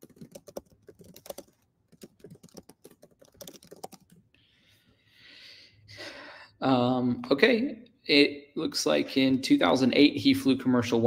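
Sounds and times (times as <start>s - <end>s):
man's voice: 6.6s - 11.0s.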